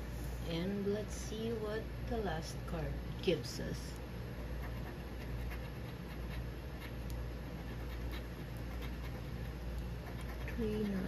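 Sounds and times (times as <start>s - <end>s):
scratch card being scratched: 4.4s - 11.0s.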